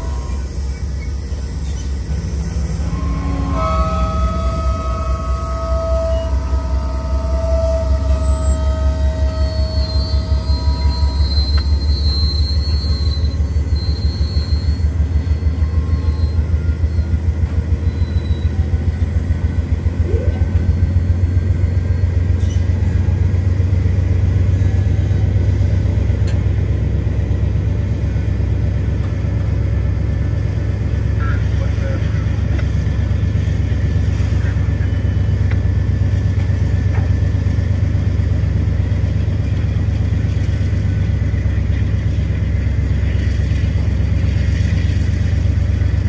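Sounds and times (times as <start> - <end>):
high-pitched wheel squeal: 0.0 - 25.6
train cars rolling with low rumble: 0.0 - 46.0.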